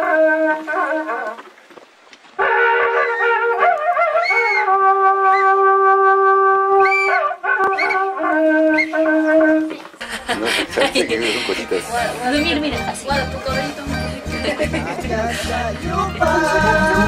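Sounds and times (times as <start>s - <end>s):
curled horn trumpet long notes: 0.0s - 1.4s, 2.4s - 9.8s.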